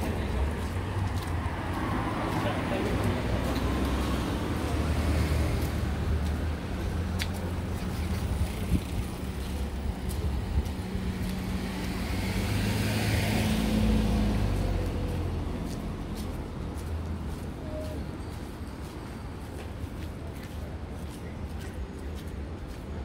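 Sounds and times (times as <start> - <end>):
low engine hum of traffic: 0.0 - 23.0
car passing by: 11.0 - 17.9.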